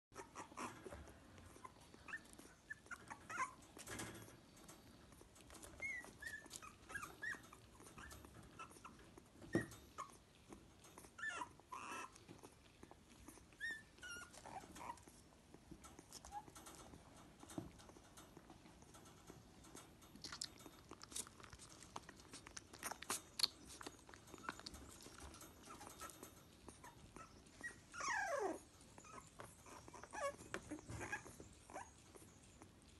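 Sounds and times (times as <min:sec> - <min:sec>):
puppy squeaks and whimpers: 0:00.1 - 0:04.6, 0:05.2 - 0:18.7, 0:20.3 - 0:32.9
puppy sucking from bottle: 0:20.2 - 0:25.3.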